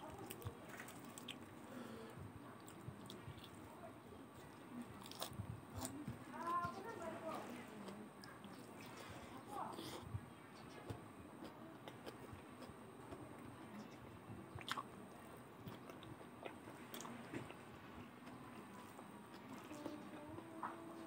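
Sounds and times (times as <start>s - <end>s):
person chewing food: 0.2s - 1.9s, 4.4s - 6.8s, 7.9s - 17.6s.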